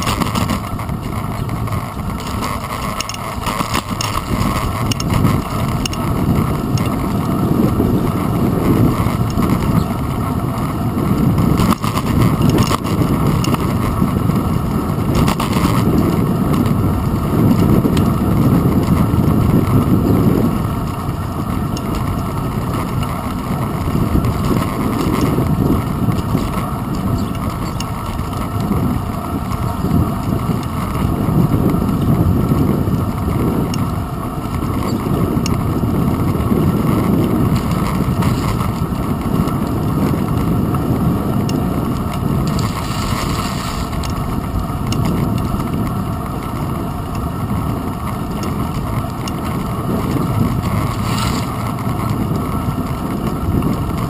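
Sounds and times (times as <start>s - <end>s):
wind and road rumble: 0.0s - 54.0s.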